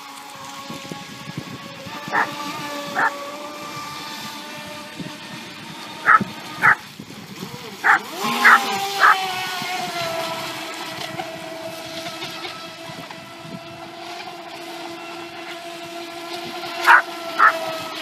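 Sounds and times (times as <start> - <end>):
model boat electric motor whine: 0.0 - 18.0
dog barking: 6.1 - 6.8, 7.8 - 9.2, 16.9 - 17.6.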